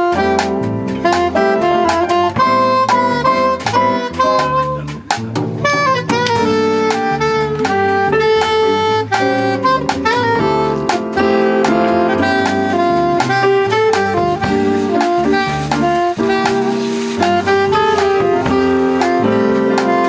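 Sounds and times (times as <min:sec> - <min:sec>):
drum kit: 0:00.0 - 0:20.0
piano chords: 0:00.0 - 0:20.0
saxophone melody: 0:00.0 - 0:20.0.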